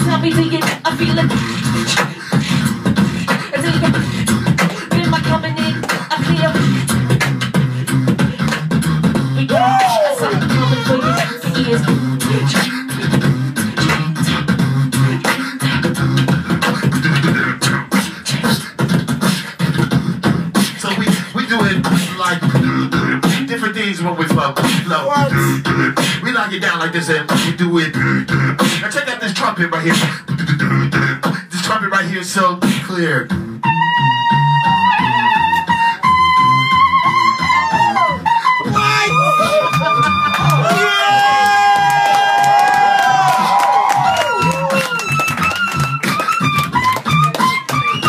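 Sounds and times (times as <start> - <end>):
beatboxing: 0.0 - 48.0
held wavering vocal note: 9.1 - 15.8, 33.6 - 40.8.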